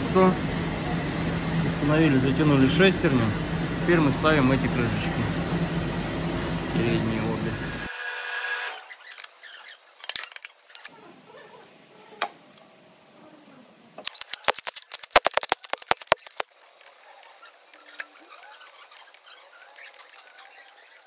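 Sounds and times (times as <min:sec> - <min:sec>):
impact wrench rattling: 0:14.0 - 0:16.5.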